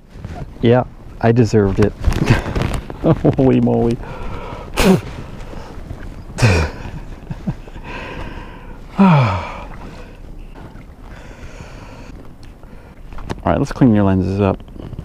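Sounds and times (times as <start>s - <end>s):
man's breathy vocal sounds: 7.8s - 10.2s.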